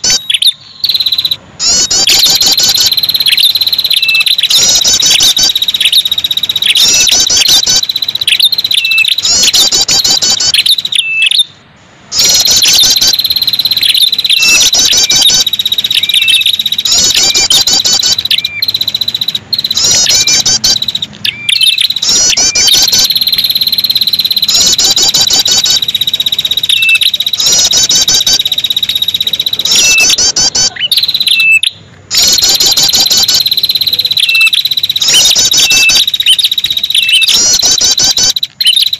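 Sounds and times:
bird rapid high trills: 0:00.0 - 0:38.9
bird short chirps: 0:00.0 - 0:38.9
loud steady insect buzz: 0:00.8 - 0:11.0, 0:12.1 - 0:30.4.

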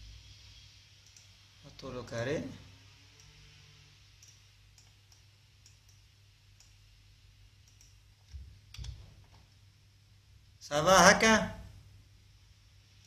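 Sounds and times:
computer mouse and keyboard clicks: 0:04.2 - 0:06.0, 0:07.6 - 0:09.5.

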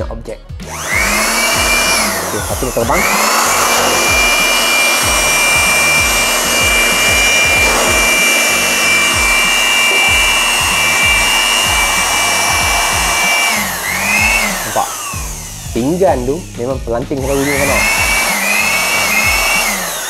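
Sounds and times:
electric blower rushing air: 0:00.6 - 0:20.0
high-pitched motor whine: 0:00.6 - 0:20.0.

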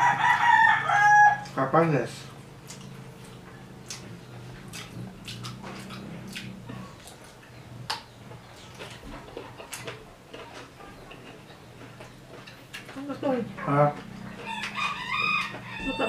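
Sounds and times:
chewing and lip-smacking: 0:02.2 - 0:16.0.

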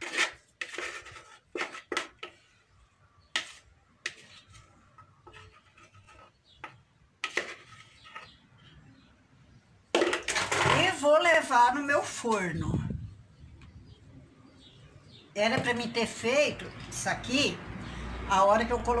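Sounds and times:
spoon scraping plastic blender jar: 0:00.0 - 0:02.6, 0:03.3 - 0:09.1.

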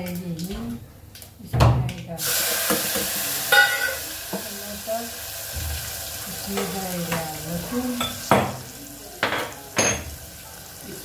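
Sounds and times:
spices sizzling in hot oil: 0:02.2 - 0:11.0.

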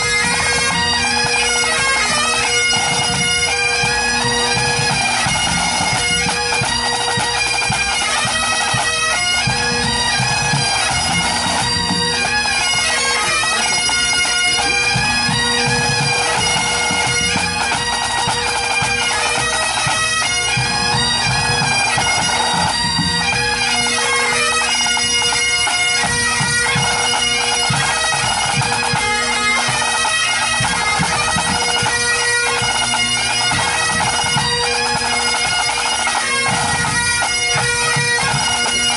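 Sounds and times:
bagpipes playing a tune: 0:00.0 - 0:38.9
drums keeping time: 0:03.0 - 0:23.5.

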